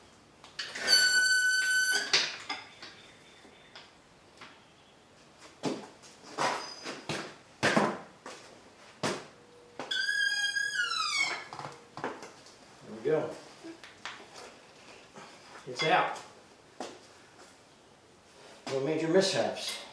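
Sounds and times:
engine hoist squealing: 0.6 - 2.6.

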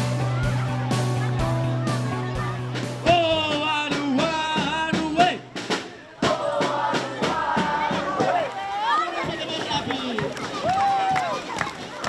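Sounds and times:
song with singing over drum beat: 0.0 - 8.5.

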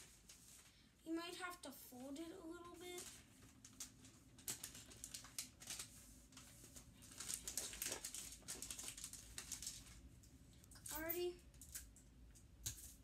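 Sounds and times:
wrapping paper crinkling: 1.9 - 10.1.

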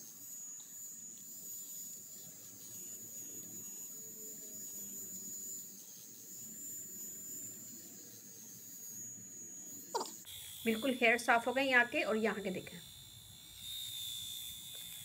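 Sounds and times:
facial hair remover buzzing: 0.0 - 15.0.

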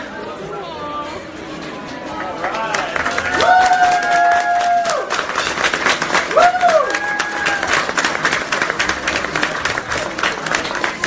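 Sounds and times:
diners applauding: 2.2 - 11.0.

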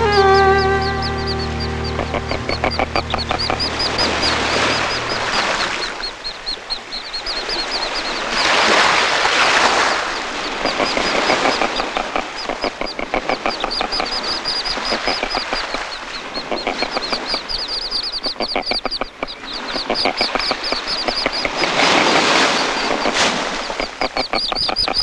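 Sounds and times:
held musical tone: 0.0 - 6.2
ducklings peeping: 0.0 - 8.9, 10.0 - 25.0
waves washing: 0.0 - 18.4, 19.2 - 25.0.

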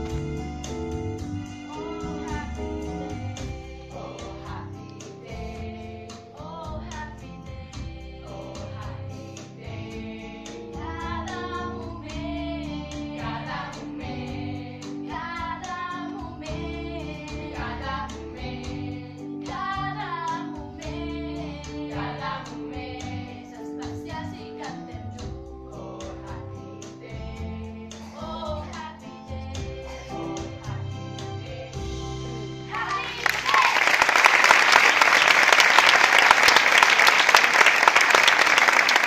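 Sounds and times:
instrumental accompaniment: 0.0 - 7.6
girls singing: 3.2 - 31.9.

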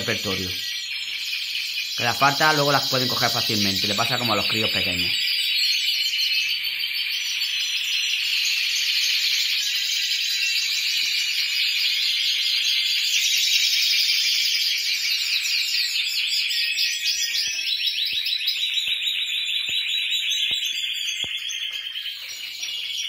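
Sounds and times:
canaries trilling in chorus: 0.0 - 23.0.

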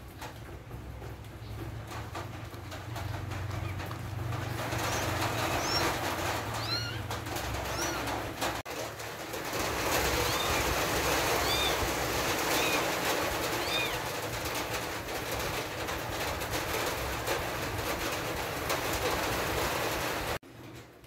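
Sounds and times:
kittens mewing: 4.8 - 8.6, 10.0 - 14.1.

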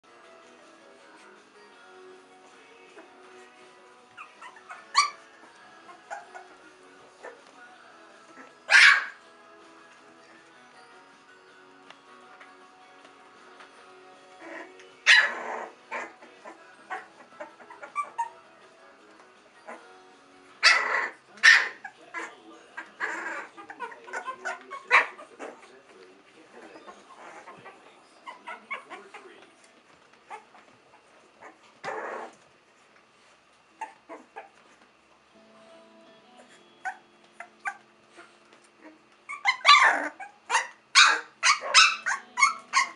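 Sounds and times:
puppies yipping and squealing: 2.9 - 7.5, 8.2 - 9.2, 14.3 - 18.6, 19.4 - 19.9, 20.6 - 25.9, 26.5 - 29.4, 30.2 - 32.4, 33.8 - 34.8, 36.4 - 42.9.

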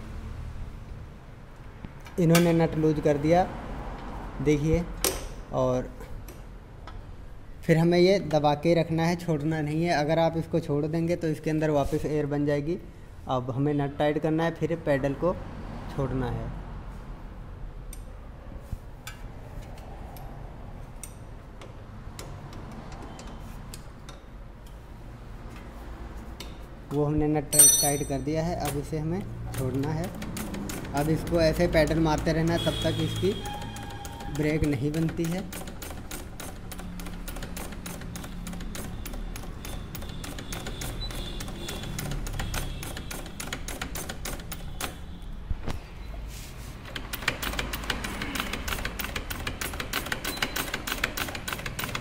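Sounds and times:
rapid mechanical clicking: 28.6 - 45.0, 46.8 - 52.0.

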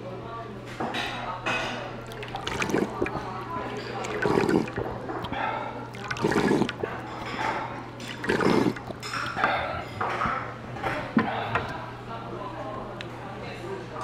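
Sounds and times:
slurping broth from spoon: 2.0 - 10.4.

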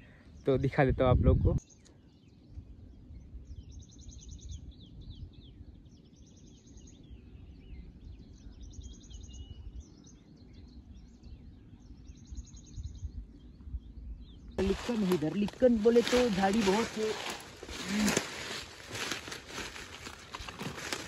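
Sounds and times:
low uneven rumble: 7.7 - 21.0.

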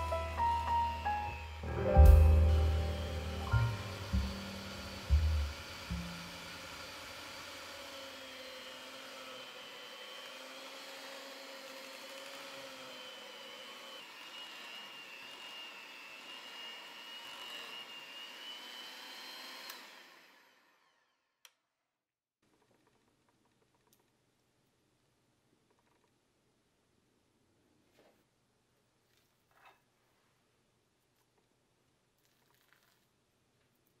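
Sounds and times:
electric hand mixer whining: 0.0 - 21.2.

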